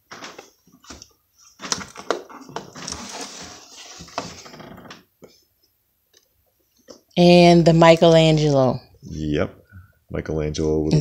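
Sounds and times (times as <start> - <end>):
packaging rustling: 0.1 - 4.7.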